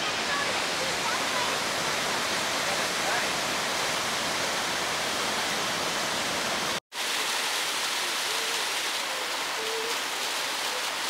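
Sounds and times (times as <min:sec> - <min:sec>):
waterfall rushing: 0:00.0 - 0:11.0
small cascade splashing: 0:06.9 - 0:11.0.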